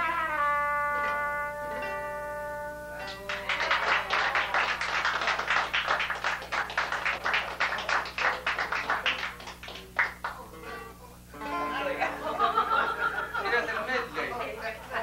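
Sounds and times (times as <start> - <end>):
people clapping: 3.0 - 10.6, 14.2 - 15.0.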